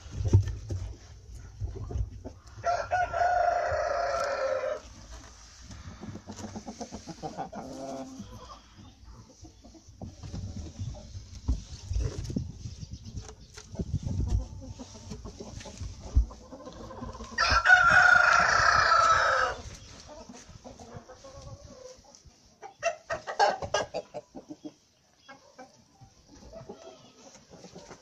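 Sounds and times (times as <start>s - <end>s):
chicken clucking: 0.8s - 28.0s
rooster crowing: 2.6s - 4.8s, 17.4s - 19.6s.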